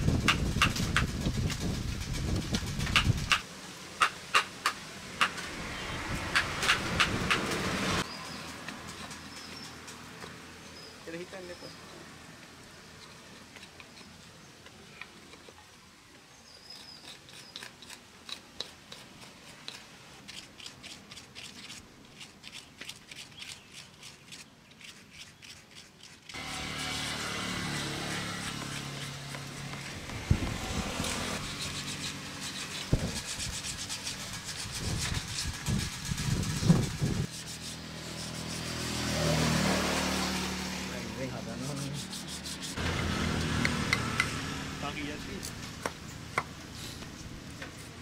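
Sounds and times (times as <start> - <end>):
knife scraping wood: 16.5 - 39.6, 41.2 - 44.4.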